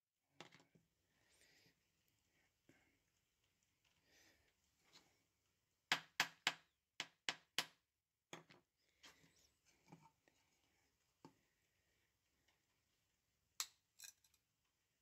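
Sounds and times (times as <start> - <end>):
glass pieces clinking and scraping: 13.6 - 14.4.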